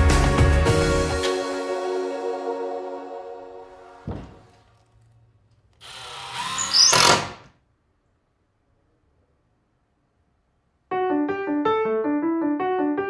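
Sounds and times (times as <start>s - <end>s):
cordless drill driving a screw: 5.8s - 7.5s.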